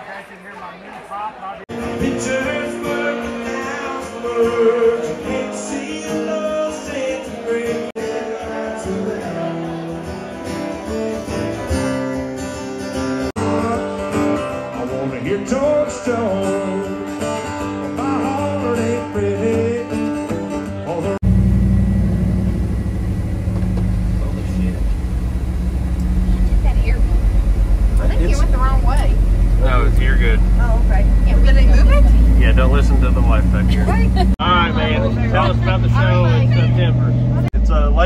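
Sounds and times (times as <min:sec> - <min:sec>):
man singing into a microphone: 0:01.7 - 0:11.7, 0:13.4 - 0:21.2
acoustic guitar strumming: 0:01.7 - 0:21.2, 0:23.4 - 0:36.9.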